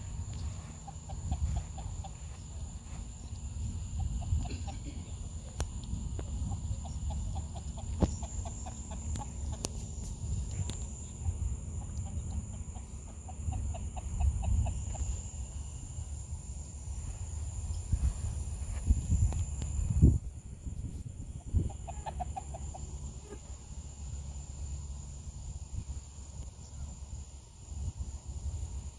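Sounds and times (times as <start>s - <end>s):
high insect drone: 0.0s - 28.9s.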